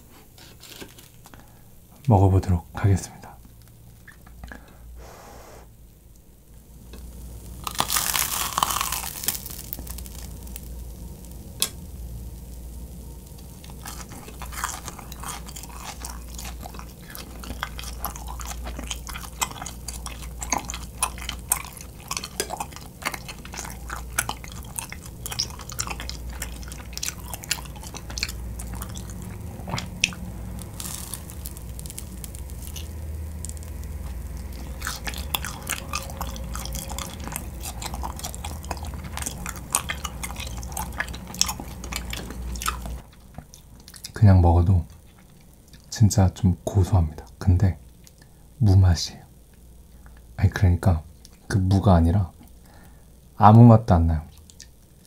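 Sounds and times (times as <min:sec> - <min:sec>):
crunching rice cake crust: 0:00.0 - 0:01.6, 0:06.8 - 0:44.2
chewing with mouth clicks: 0:13.3 - 0:44.2, 0:51.2 - 0:51.5, 0:54.3 - 0:54.9.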